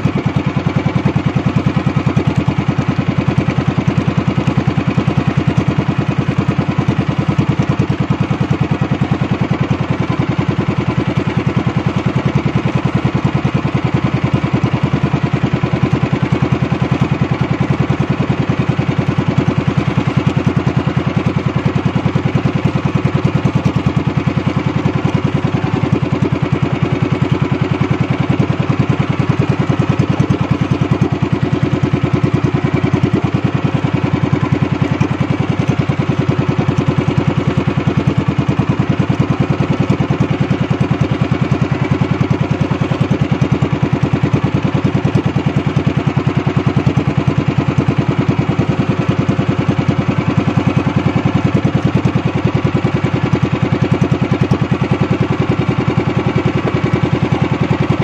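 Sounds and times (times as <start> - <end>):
small boat engine running: 0.0 - 58.0.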